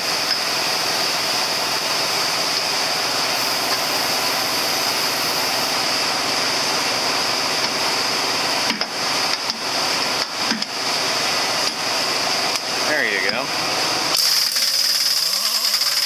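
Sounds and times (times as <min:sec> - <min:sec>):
pneumatic impact wrench running: 0:14.1 - 0:16.0.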